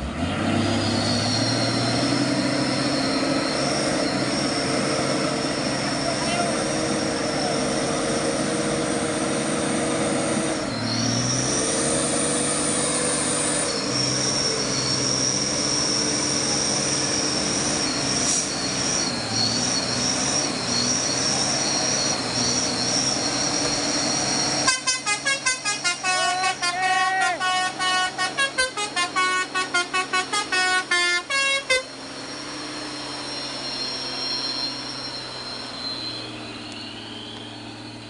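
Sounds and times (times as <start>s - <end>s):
truck diesel engine straining: 0.0s - 38.0s
rapid pulsing horn tooting: 5.8s - 7.6s, 16.3s - 36.3s
steady high whine: 13.4s - 38.0s.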